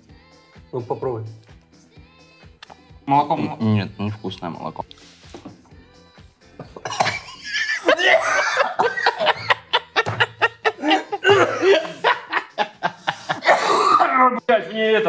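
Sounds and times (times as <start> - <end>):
men laughing hard: 6.8 - 14.0.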